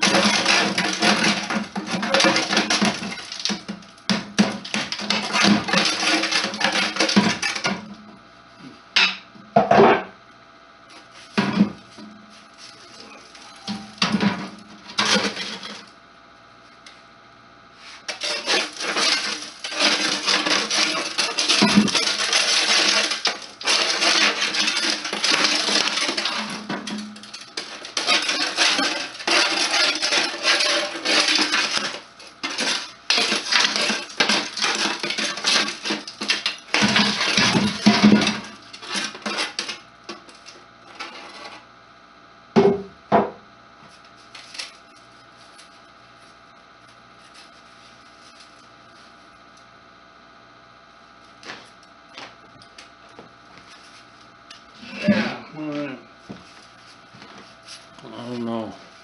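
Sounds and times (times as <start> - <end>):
metallic scraping: 17.8 - 37.5.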